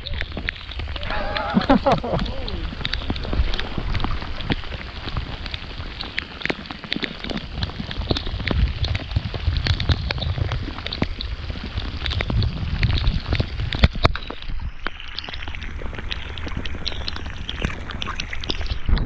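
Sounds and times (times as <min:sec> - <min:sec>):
heavy rain on water: 0:00.0 - 0:14.6, 0:15.3 - 0:18.8
low rumble: 0:00.7 - 0:13.8.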